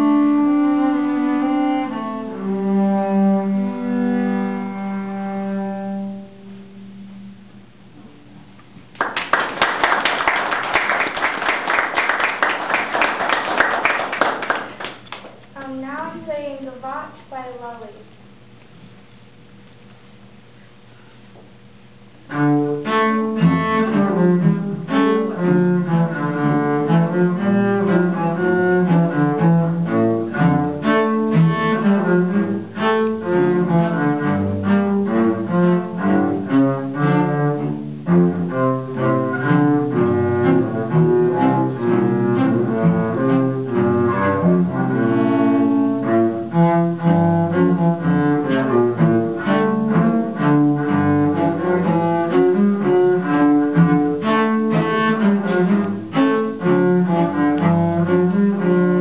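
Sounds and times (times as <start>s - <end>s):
two cellos playing: 0.0s - 6.8s, 22.2s - 59.0s.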